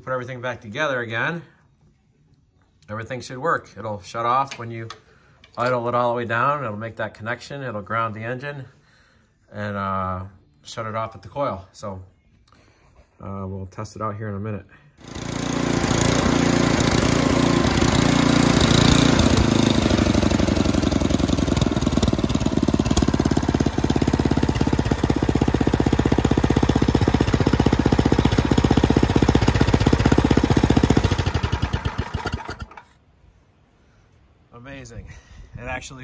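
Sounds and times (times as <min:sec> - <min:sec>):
snowblower engine idling: 0:15.0 - 0:32.9.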